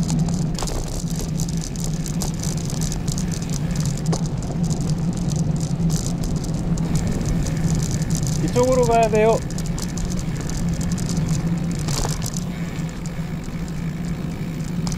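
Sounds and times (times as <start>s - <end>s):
bicycle rolling rumble: 0.0s - 14.9s
bike rattling and clicking: 0.0s - 14.9s.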